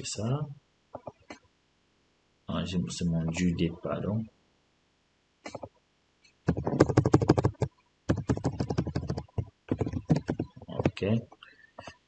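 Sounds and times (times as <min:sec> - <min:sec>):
keyboard typing: 0:05.5 - 0:05.7, 0:06.5 - 0:11.2.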